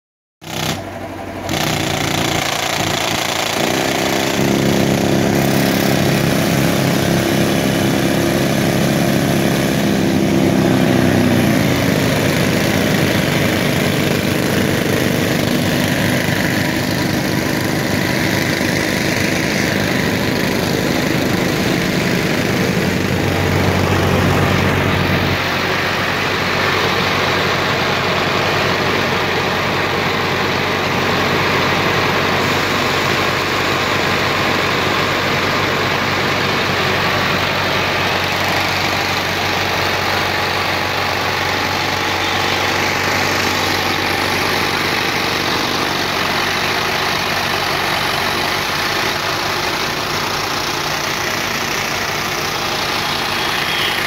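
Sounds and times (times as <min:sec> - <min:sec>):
tractor diesel engine running: 0:00.4 - 0:54.0.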